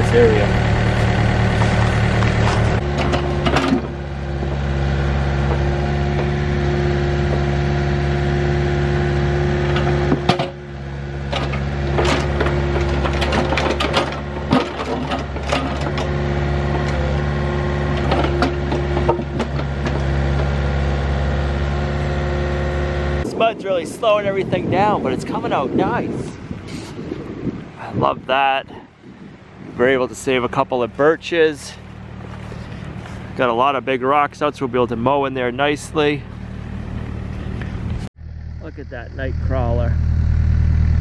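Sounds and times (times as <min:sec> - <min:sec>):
mini excavator engine: 0:00.0 - 0:23.2, 0:30.7 - 0:33.8.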